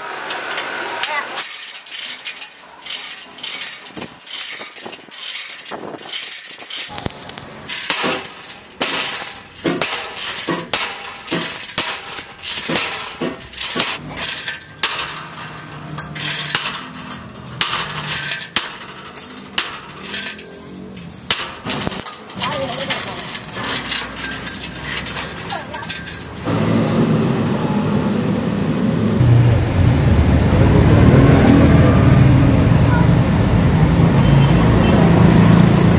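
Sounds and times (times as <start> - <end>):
metal-on-metal clanking: 0.2 - 26.6.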